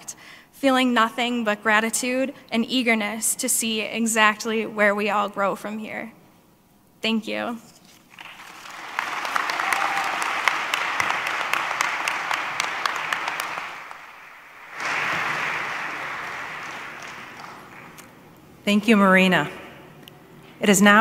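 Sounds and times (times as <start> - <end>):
audience applauding: 8.1 - 18.2.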